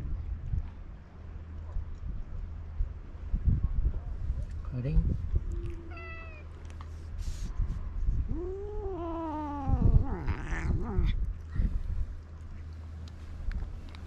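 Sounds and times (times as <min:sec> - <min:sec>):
cat yowling: 0:05.6 - 0:06.5, 0:08.3 - 0:11.2
cat hissing: 0:08.3 - 0:11.2.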